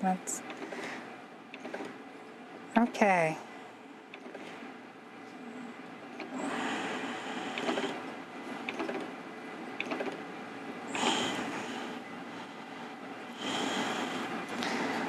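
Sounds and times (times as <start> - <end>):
microtome mechanism whirring: 1.5 - 2.0, 6.0 - 9.1.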